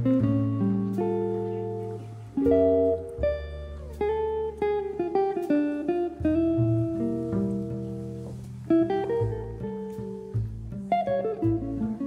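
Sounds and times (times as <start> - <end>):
bass line: 0.0 - 12.0
plucked guitar melody: 0.0 - 12.0.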